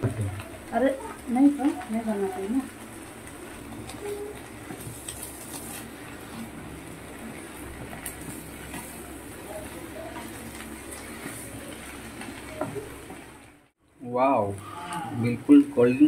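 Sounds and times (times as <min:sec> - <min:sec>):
food sizzling in a pan: 0:00.0 - 0:16.0.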